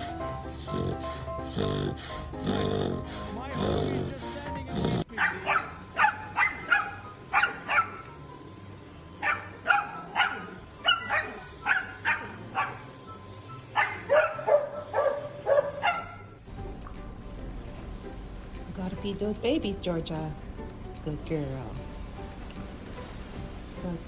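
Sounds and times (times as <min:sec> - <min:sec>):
puppy barking: 0:05.0 - 0:08.2, 0:09.2 - 0:13.1, 0:13.7 - 0:16.4.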